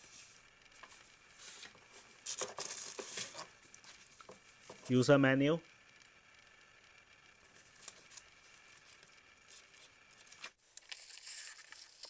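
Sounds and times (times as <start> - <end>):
paper and cardboard rustling: 0.0 - 5.0, 7.5 - 10.6.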